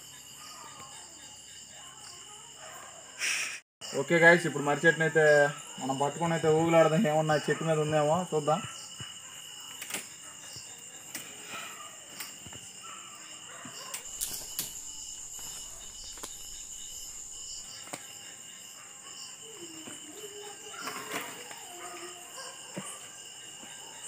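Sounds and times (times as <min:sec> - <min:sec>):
crickets chirring: 0:00.0 - 0:24.0
tree roots rustling and clicking: 0:13.9 - 0:18.1.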